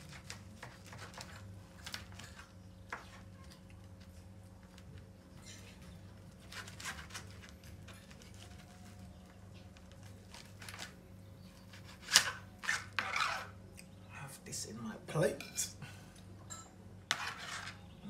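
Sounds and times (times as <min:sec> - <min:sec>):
knife and fork scraping meat: 0:00.0 - 0:03.6, 0:05.4 - 0:09.0, 0:11.6 - 0:13.6, 0:17.1 - 0:18.0
low electrical hum: 0:00.0 - 0:18.0.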